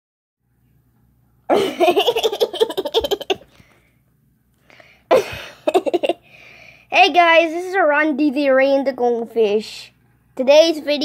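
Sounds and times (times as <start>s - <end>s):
person laughing: 1.5s - 3.5s, 5.1s - 6.2s.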